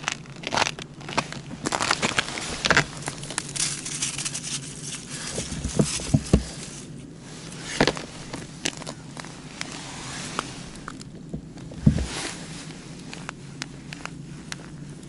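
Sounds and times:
boots crunching on snow: 0:00.0 - 0:13.0
dull low thumps: 0:05.1 - 0:06.8, 0:10.6 - 0:15.0.

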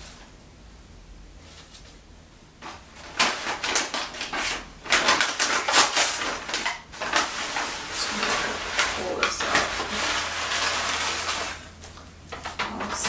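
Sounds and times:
paper crinkling and rustling: 0:02.6 - 0:13.0.

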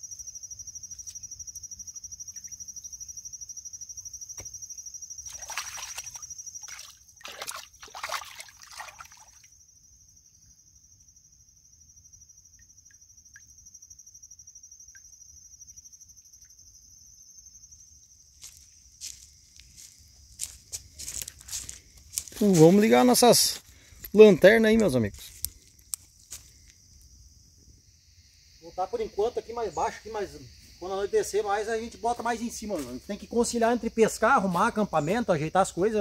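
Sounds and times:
high trill of insects: 0:00.0 - 0:36.0
water splashing and sloshing: 0:05.2 - 0:09.5.

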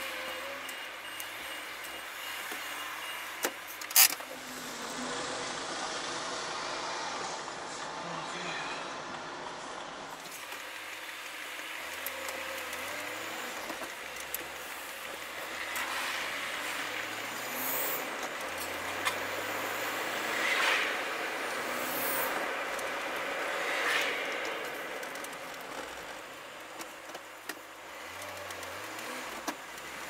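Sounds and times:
road and tyre noise: 0:00.0 - 0:30.0
vehicle engine accelerating: 0:04.3 - 0:08.3, 0:10.5 - 0:30.0.

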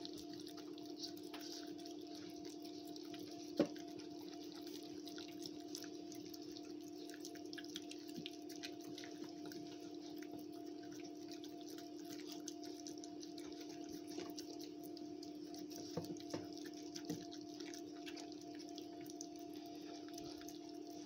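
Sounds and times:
puppies licking and chewing: 0:00.0 - 0:21.0
steady low hum: 0:00.0 - 0:21.0.

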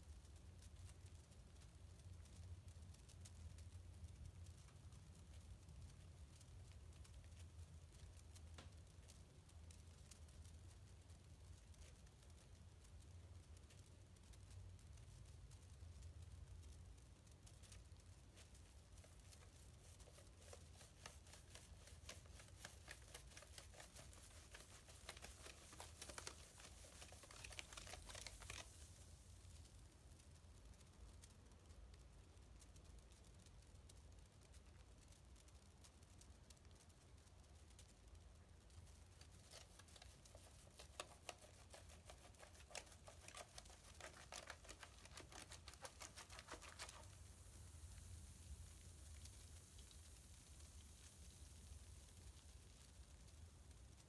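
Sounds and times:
soft hiss: 0:00.0 - 0:54.0
bath bomb fizzing: 0:17.5 - 0:29.5, 0:39.1 - 0:52.7.

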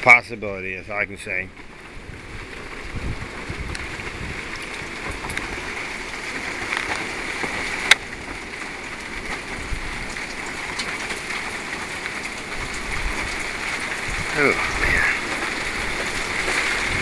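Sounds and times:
steady rain falling: 0:00.0 - 0:17.0
wind rumbling on microphone: 0:00.0 - 0:17.0.

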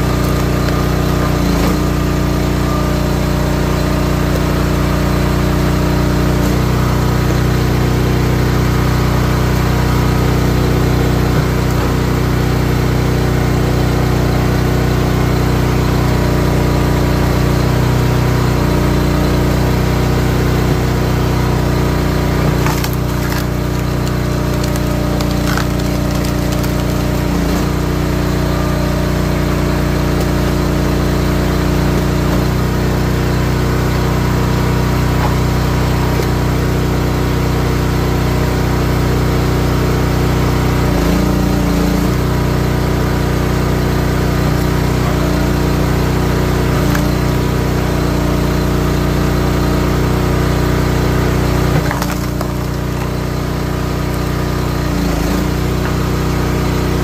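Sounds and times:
wood cracking and splintering: 0:00.0 - 0:07.4, 0:20.2 - 0:37.1, 0:43.6 - 0:48.2, 0:51.1 - 0:56.8
small gas engine running: 0:00.0 - 0:57.0.

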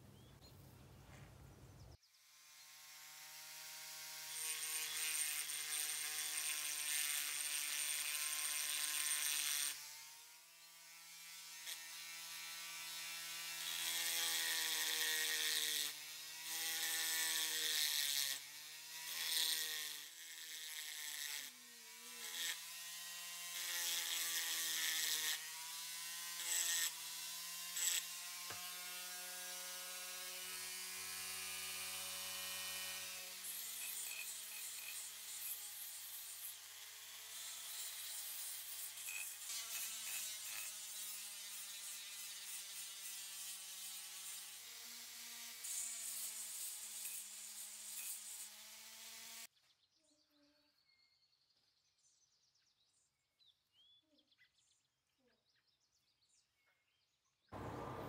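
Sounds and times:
rotary tool motor whine: 0:02.4 - 0:42.4
burr grinding metal hiss: 0:57.6 - 0:58.0.

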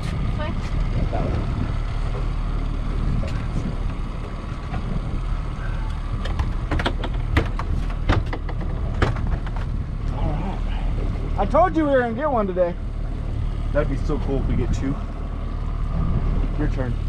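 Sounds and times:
boat motor rumbling: 0:00.0 - 0:17.0
sharp knocks and clicks: 0:06.2 - 0:09.8.

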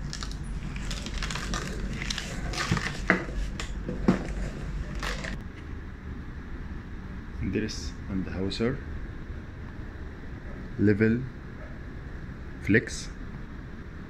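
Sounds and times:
cardboard rustling: 0:00.0 - 0:05.4
plastic bag crinkling: 0:00.0 - 0:05.4.

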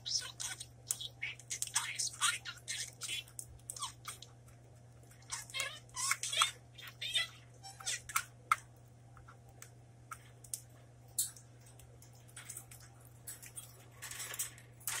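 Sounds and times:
budgerigar clicks and ticks: 0:00.1 - 0:11.9.

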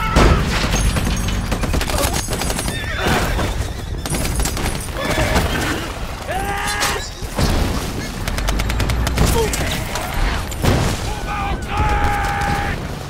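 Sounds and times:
explosions: 0:07.3 - 0:13.0
dense gunfire: 0:07.6 - 0:13.0.

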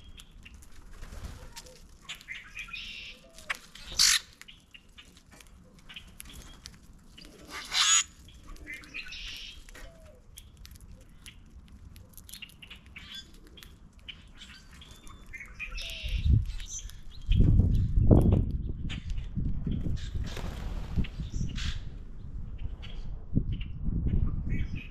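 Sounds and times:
birds chirping and calling: 0:00.0 - 0:11.5, 0:12.2 - 0:24.9
harsh bird squawk: 0:03.9 - 0:04.3, 0:07.5 - 0:08.1
bird wingbeats: 0:20.0 - 0:21.8.

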